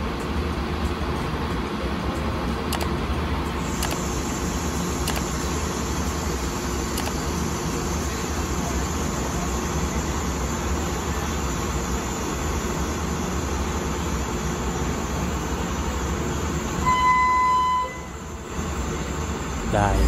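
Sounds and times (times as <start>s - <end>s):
diesel railcar idling: 0.0s - 20.0s
loud high tone: 16.8s - 18.3s, 19.6s - 20.0s.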